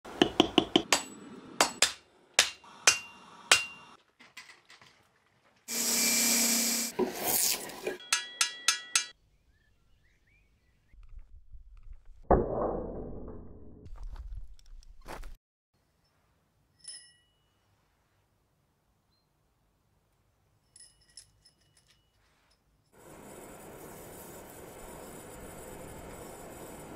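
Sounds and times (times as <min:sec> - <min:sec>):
hammer ringing on steel anvil: 0:00.9 - 0:03.9, 0:08.0 - 0:09.2.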